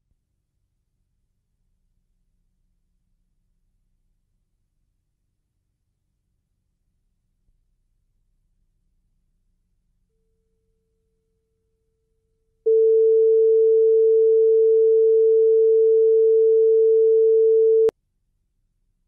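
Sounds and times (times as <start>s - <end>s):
steady sine test tone: 12.7s - 17.9s.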